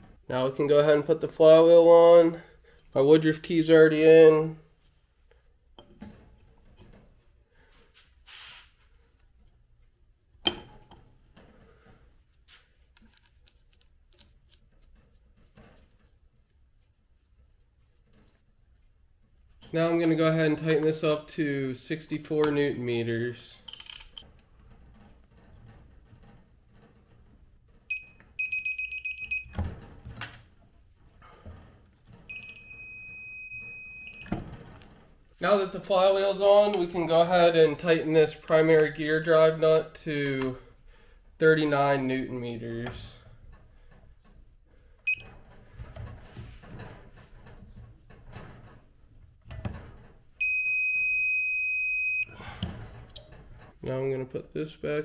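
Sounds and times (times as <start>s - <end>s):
torque wrench beeping: 27.9s - 29.6s, 32.3s - 34.3s, 45.1s - 45.3s, 50.4s - 52.3s
digital torque wrench beep: 45.1s - 45.3s.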